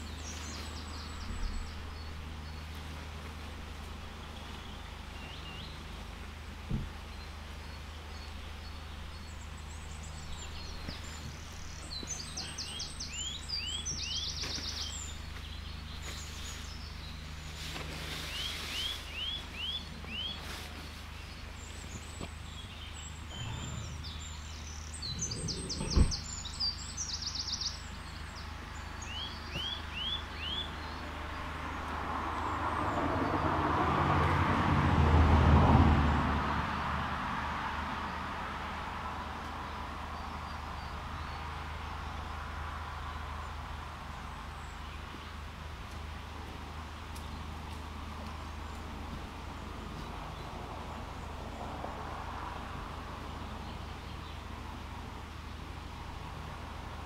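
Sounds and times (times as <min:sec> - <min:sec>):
songbird chirps and trills: 0:00.0 - 0:33.4
passing vehicle: 0:00.0 - 0:57.0.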